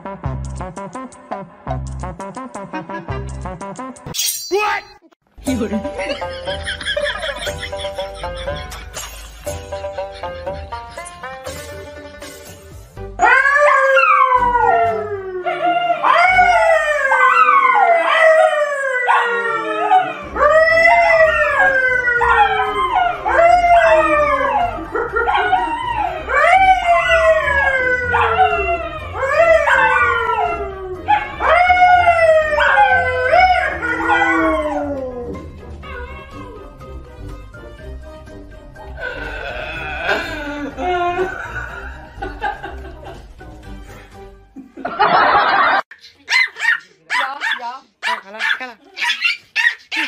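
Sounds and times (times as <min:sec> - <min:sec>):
dog howling: 0:13.2 - 0:36.8
man howling: 0:39.0 - 0:41.8.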